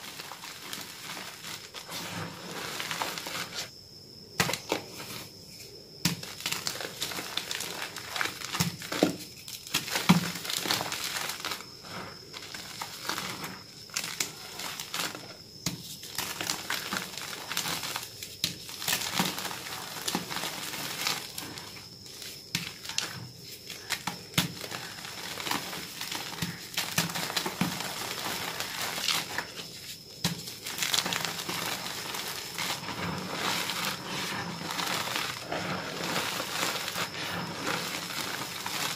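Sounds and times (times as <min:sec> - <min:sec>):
chalk crunching by hand: 0:24.6 - 0:38.9.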